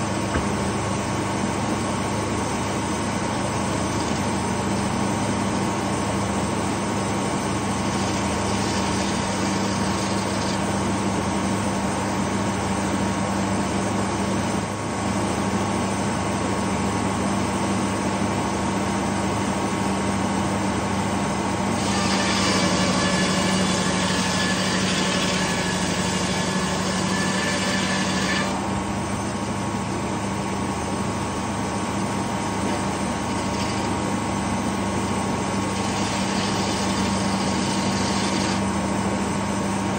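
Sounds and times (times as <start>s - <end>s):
circular saw blade cutting logs: 3.2s - 6.0s, 7.4s - 12.3s, 21.6s - 28.7s, 32.2s - 38.9s.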